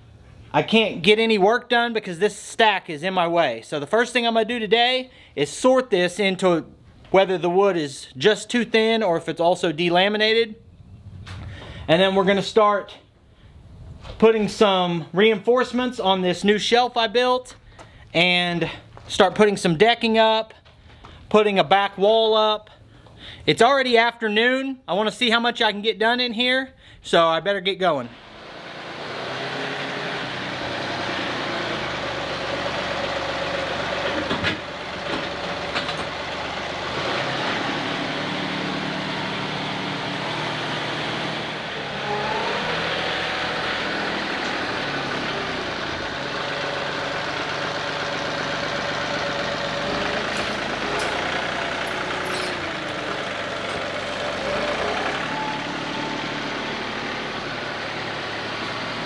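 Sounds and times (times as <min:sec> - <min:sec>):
tractor engine running: 0:28.2 - 0:59.0.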